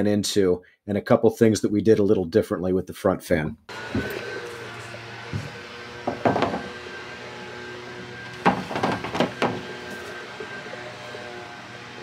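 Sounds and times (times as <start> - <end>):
knocks and thumps: 5.3 - 6.8, 8.2 - 10.0.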